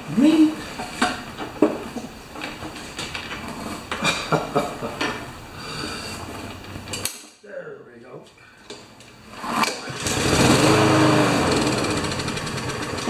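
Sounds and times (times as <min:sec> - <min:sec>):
lawn mower engine running: 0:09.3 - 0:13.0
starter cord pull: 0:09.4 - 0:10.6.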